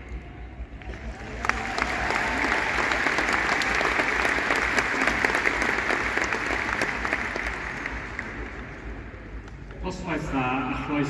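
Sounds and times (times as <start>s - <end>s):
crowd applauding: 0.8s - 9.4s.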